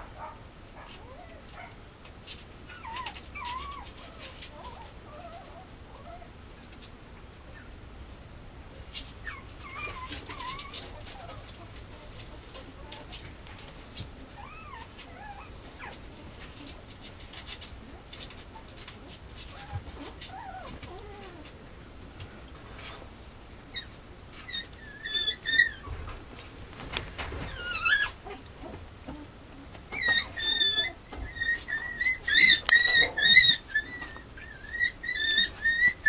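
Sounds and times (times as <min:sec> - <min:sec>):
puppy whimpering: 0:02.7 - 0:06.3, 0:09.2 - 0:21.6, 0:23.7 - 0:26.1, 0:27.4 - 0:36.0
puppy squealing: 0:09.2 - 0:11.4, 0:14.4 - 0:16.0, 0:23.7 - 0:25.9, 0:27.4 - 0:28.5, 0:29.9 - 0:36.0.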